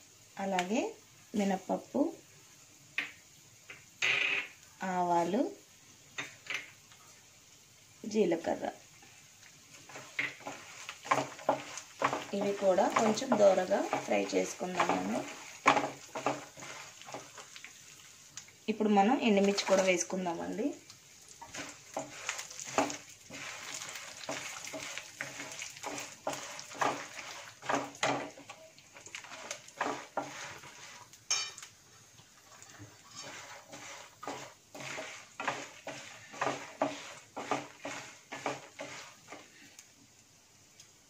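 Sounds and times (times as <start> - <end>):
light sizzle of frying: 0.0 - 41.0
wooden spatula scraping a pan: 8.4 - 31.4, 32.2 - 39.8.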